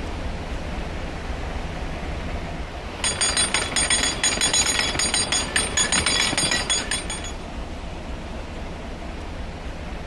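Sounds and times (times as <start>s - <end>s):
metal ratchet clicking: 3.0s - 7.4s.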